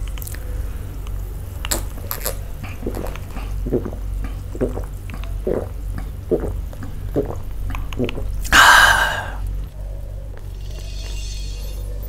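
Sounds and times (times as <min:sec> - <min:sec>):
person gulping drink: 0:01.6 - 0:09.6.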